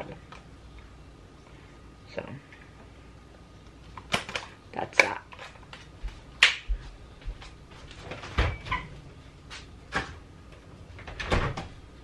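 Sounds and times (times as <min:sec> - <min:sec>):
refrigerator door knocks and clicks: 0:11.0 - 0:11.7.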